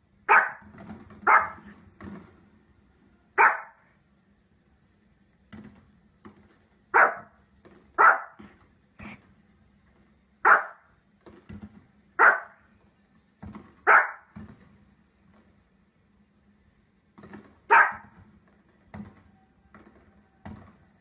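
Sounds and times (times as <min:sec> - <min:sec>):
dog yipping: 0:00.3 - 0:01.7, 0:03.4 - 0:03.8, 0:07.0 - 0:07.3, 0:08.0 - 0:08.4, 0:10.4 - 0:10.8, 0:12.2 - 0:12.6, 0:13.9 - 0:14.3, 0:17.7 - 0:18.1
small dog barking: 0:00.3 - 0:01.7, 0:03.4 - 0:03.9, 0:06.9 - 0:07.4, 0:08.0 - 0:08.4, 0:10.4 - 0:10.9, 0:12.2 - 0:12.6, 0:13.8 - 0:14.3, 0:17.7 - 0:18.2.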